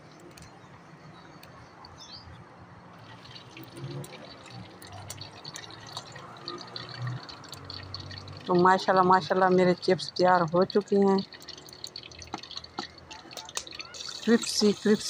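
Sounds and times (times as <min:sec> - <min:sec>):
chips frying in hot oil: 0:03.0 - 0:15.0.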